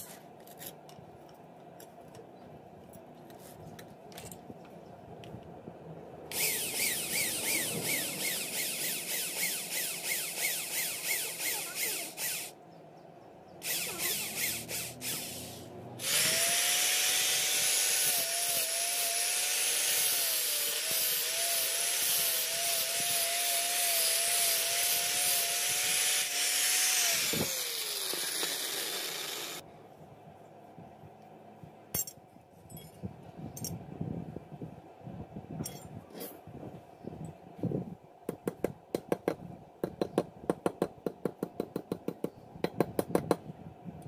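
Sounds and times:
angle grinder grinding metal: 6.3 - 12.5, 13.6 - 29.6
electric drill boring metal: 6.3 - 12.6, 13.6 - 29.6.

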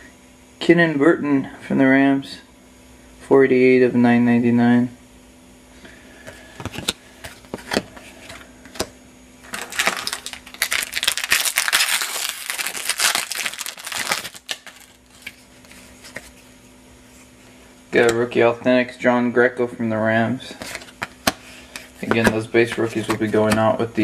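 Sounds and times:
cards and packaging handled: 6.2 - 16.4, 20.5 - 23.8.

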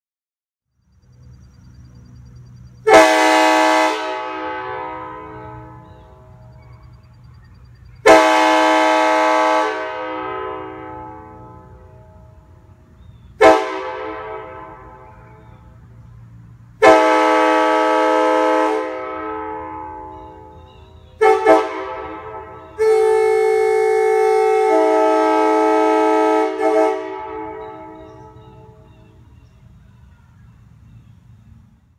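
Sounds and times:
train horn blasts: 2.8 - 6.7, 8.0 - 15.6, 16.8 - 29.2.

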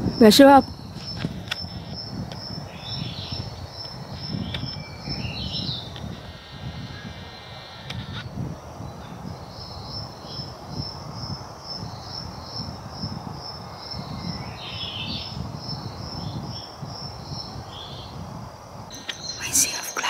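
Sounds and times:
high even chirp: 18.9 - 20.0.

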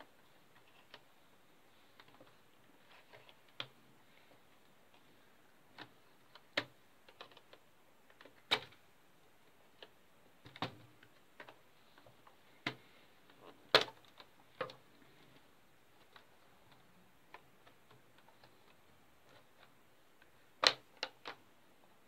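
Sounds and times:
plastic clicks and snaps: 16.0 - 21.4.

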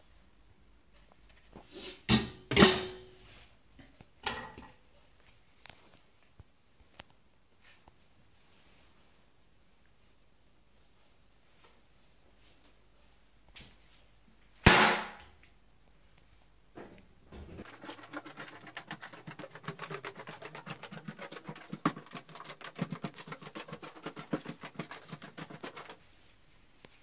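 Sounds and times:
loud sharp bang: 14.6 - 15.2
rapid clicking and knocking: 17.6 - 26.0.

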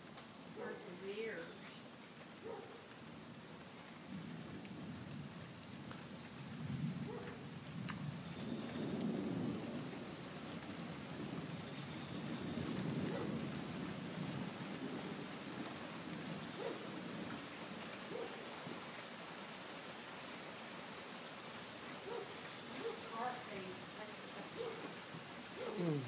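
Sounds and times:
steady rain falling: 0.0 - 26.0
low thunder rumble: 3.1 - 18.8.

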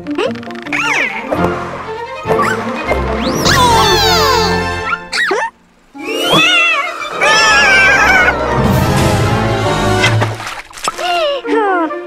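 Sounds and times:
cartoon music: 2.2 - 10.2
rising whistle: 2.4 - 5.0.

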